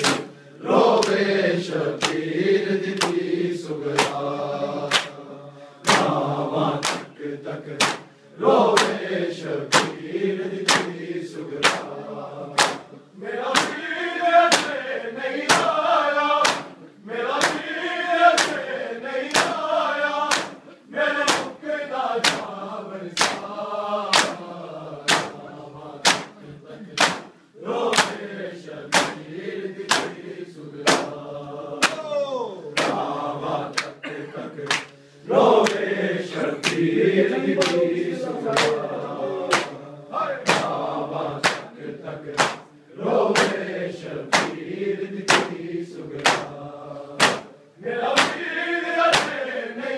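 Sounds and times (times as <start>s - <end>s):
hands slapping chests: 0.0s - 1.3s, 1.9s - 5.2s, 5.8s - 9.1s, 9.7s - 13.9s, 14.5s - 14.8s, 15.4s - 15.8s, 16.4s - 17.7s, 18.3s - 21.6s, 22.2s - 25.4s, 26.0s - 28.3s, 28.9s - 29.3s, 29.9s - 30.2s, 30.8s - 31.2s, 31.8s - 32.2s, 32.8s - 34.0s, 34.6s - 35.0s, 35.6s - 35.9s, 36.6s - 39.8s, 40.4s - 42.7s, 43.3s - 43.7s, 44.3s - 44.6s, 45.3s - 46.6s, 47.2s - 48.5s, 49.1s - 49.4s
men chanting in unison: 0.0s - 49.9s.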